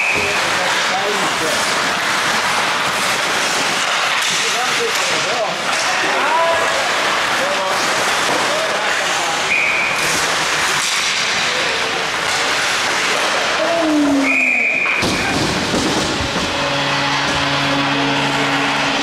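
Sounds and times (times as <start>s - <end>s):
skates on ice: 0.0s - 19.0s
referee's whistle blasts: 9.5s - 10.0s, 14.2s - 15.0s.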